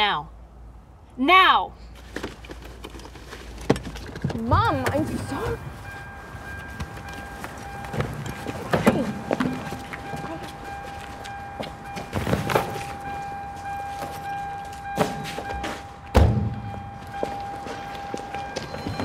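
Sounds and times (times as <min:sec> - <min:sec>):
held high music tone: 0:04.6 - 0:19.0
dull thuds: 0:14.9 - 0:17.6.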